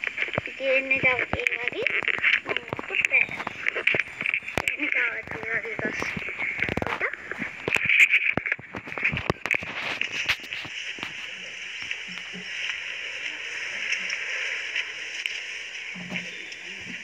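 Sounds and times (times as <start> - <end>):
high hiss-like drone: 0.0 - 17.0
leaves rustling against phone: 0.0 - 17.0.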